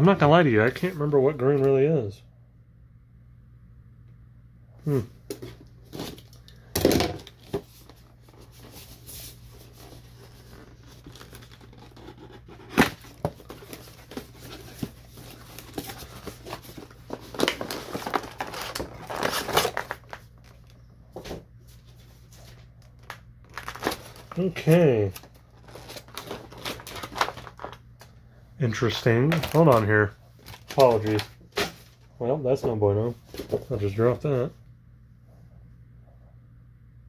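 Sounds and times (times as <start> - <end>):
packaging crinkling and rustling: 5.3 - 28.2, 28.8 - 32.1, 33.2 - 34.2.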